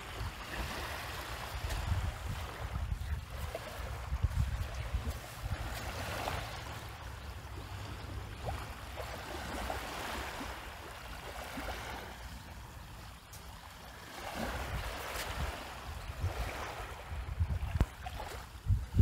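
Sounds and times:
wind buffeting the microphone: 0.0s - 7.7s, 14.2s - 19.0s
waves washing against a seawall: 0.0s - 19.0s.

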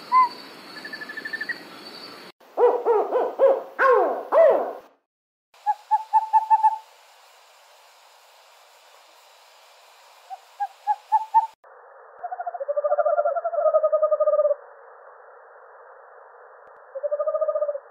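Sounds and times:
owl hooting: 5.6s - 6.8s, 10.3s - 11.6s, 12.2s - 14.6s, 16.9s - 17.9s
owl rapid trills: 5.6s - 6.9s, 10.2s - 11.6s.

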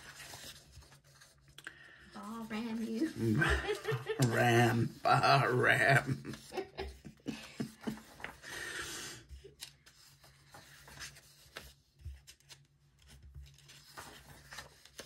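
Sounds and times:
book pages rustling: 0.0s - 3.4s, 5.7s - 8.6s, 9.2s - 15.0s.

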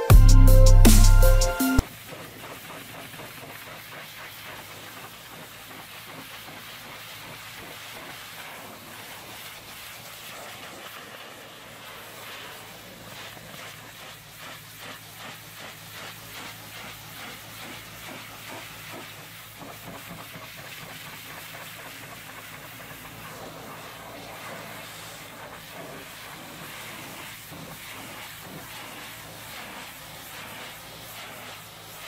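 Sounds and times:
low hum: 0.0s - 1.8s
pressure washer spray on metal: 0.5s - 32.0s.

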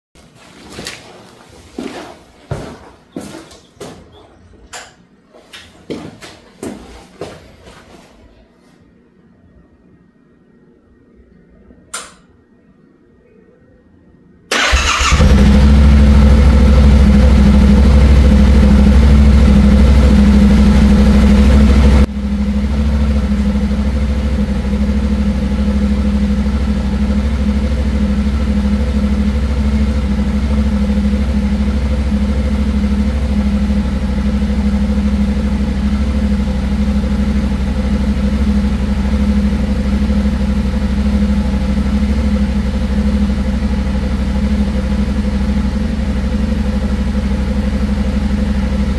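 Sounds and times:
motorcycle engine starting and idling: 14.5s - 48.9s.

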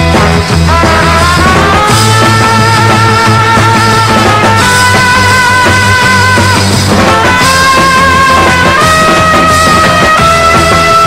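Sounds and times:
held melody over bass: 0.0s - 11.0s.

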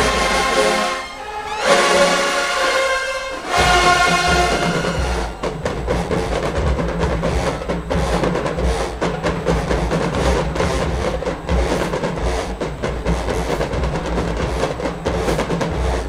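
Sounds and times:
drumline fast beat: 0.0s - 1.1s, 1.7s - 16.0s
horns holding a chord: 0.0s - 16.0s.

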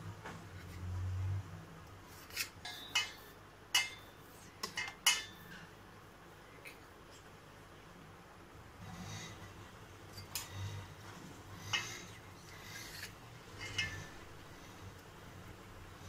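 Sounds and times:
steel plate clinking: 2.6s - 5.5s, 13.0s - 14.2s.

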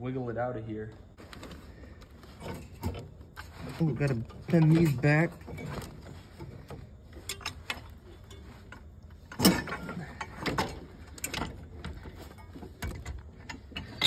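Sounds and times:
metal tool clanks and clicks: 7.1s - 14.0s.

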